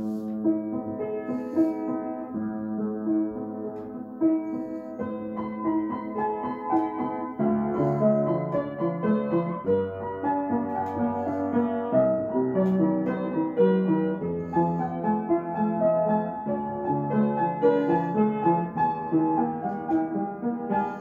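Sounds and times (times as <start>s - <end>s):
acoustic piano playing: 0.0s - 21.0s.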